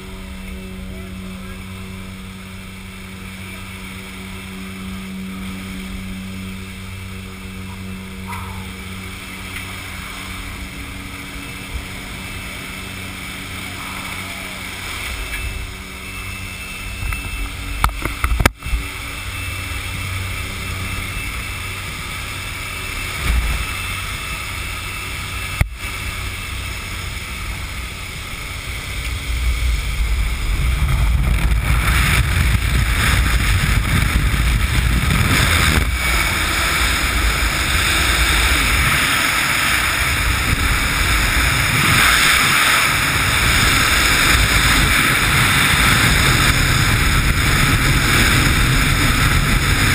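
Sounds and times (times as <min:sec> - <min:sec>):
plane engine and propeller drone: 0:00.0 - 0:49.9
rushing air: 0:01.8 - 0:49.9
wind rushing over camera: 0:17.0 - 0:49.9.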